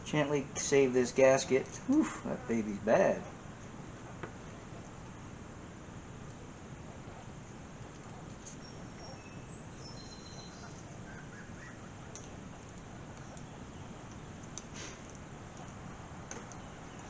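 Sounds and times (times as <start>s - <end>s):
low background hiss: 0.0s - 17.0s
faint high chirps: 8.5s - 11.8s.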